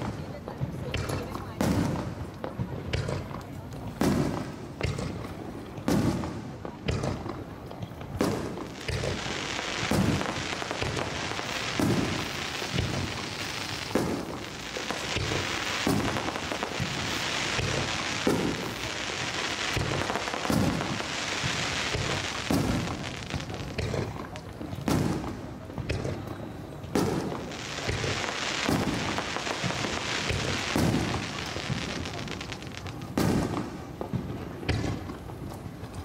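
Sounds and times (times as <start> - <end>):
firework shells booming: 0.0 - 26.3, 26.9 - 35.5
firework crackling hiss: 0.0 - 36.0.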